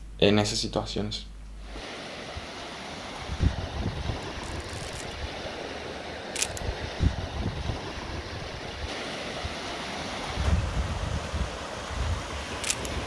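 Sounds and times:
small waves on pebble shore: 1.8s - 13.0s
wind gusting on microphone: 3.2s - 13.0s
sharp clicks: 6.4s - 6.7s, 12.6s - 13.0s.

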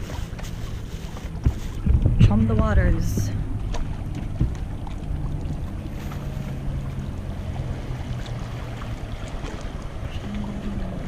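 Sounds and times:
motorboat engine humming: 0.0s - 11.0s
water washing against rocks: 0.0s - 11.0s
wind: 0.0s - 11.0s
small splash in water: 3.6s - 10.8s.

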